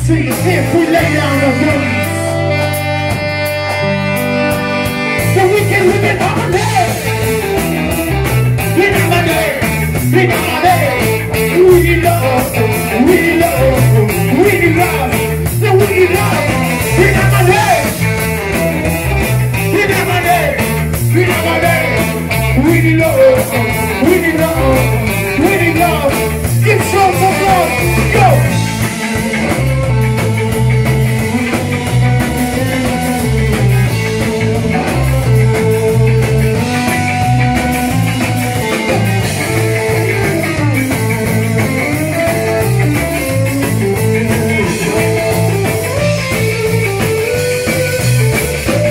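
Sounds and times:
bass line: 0.0s - 48.9s
drum kit beat: 0.0s - 48.9s
electric guitars: 0.0s - 48.9s
saxophone: 0.9s - 5.4s
person singing into a microphone: 8.6s - 18.0s, 19.6s - 28.6s.

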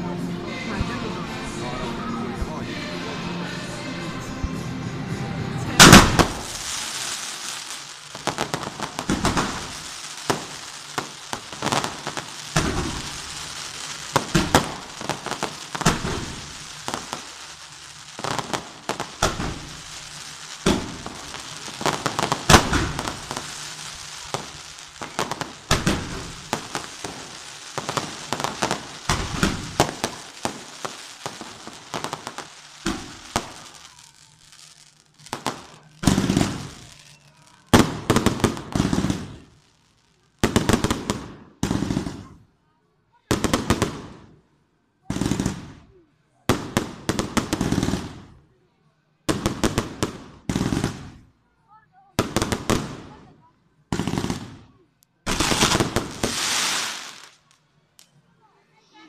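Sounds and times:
fireworks bangs: 5.6s - 42.4s, 43.3s - 44.4s, 45.0s - 48.4s, 49.3s - 51.3s, 52.1s - 57.6s
hissing crackling spark fountains: 5.8s - 42.3s, 55.2s - 58.1s.

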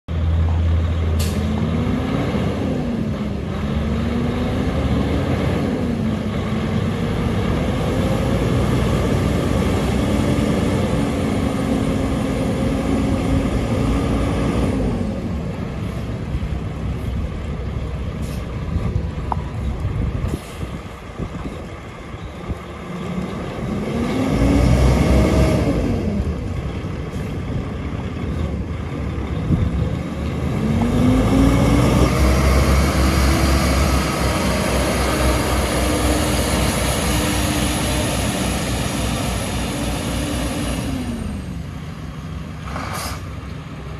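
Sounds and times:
diesel truck engine revving: 0.1s - 43.9s.

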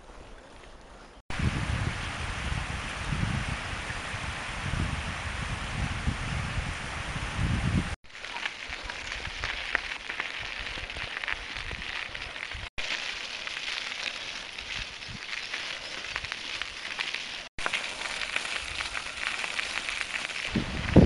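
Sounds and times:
bicycle tyres rolling on gravel: 4.6s - 21.0s.

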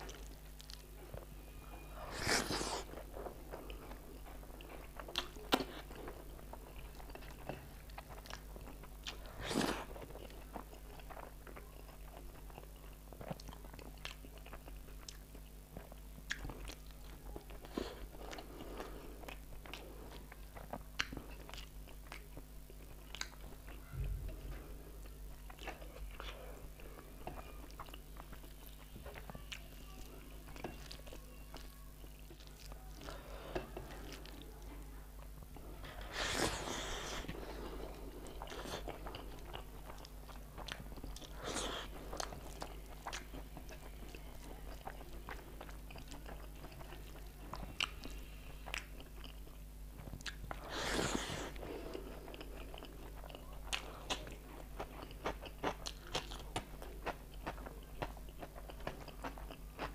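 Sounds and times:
chewing and wet mouth smacks: 19.2s - 26.4s, 38.3s - 59.9s.

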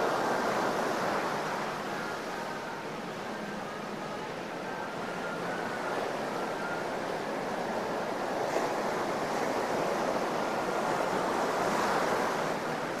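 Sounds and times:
surf washing onto beach: 7.3s - 13.0s.

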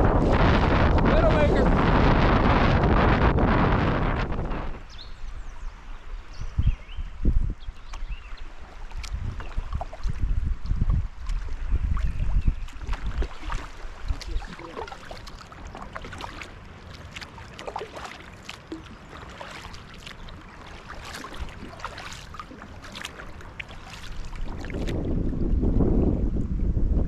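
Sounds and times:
moving water wash: 0.0s - 4.9s, 8.0s - 26.3s
wind buffeting microphone: 0.0s - 27.0s
paddle splashes and drips: 7.7s - 25.6s.

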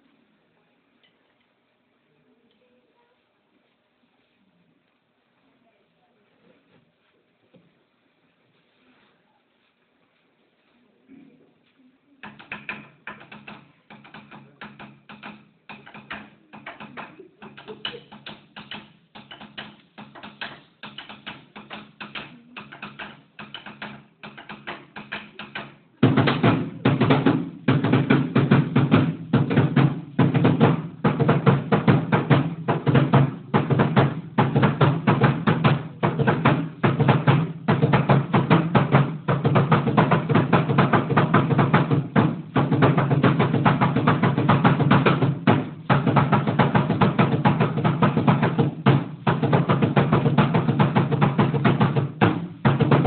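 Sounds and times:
drum beating fast: 12.2s - 53.0s.

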